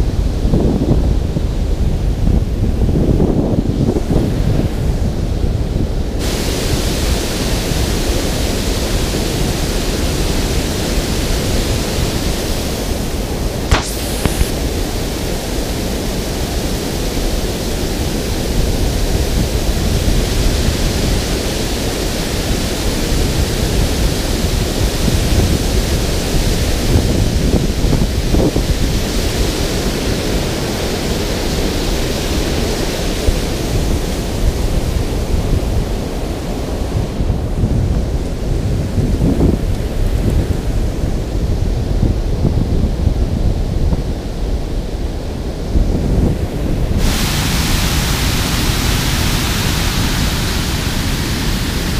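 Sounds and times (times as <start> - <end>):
water rushing over spillway: 4.0 - 41.4, 46.3 - 51.9
brief click: 13.7 - 14.6.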